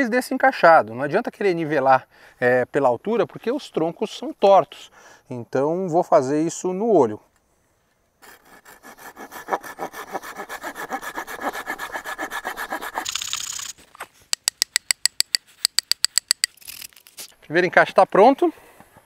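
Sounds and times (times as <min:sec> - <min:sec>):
saw cutting wood: 0:08.2 - 0:13.2.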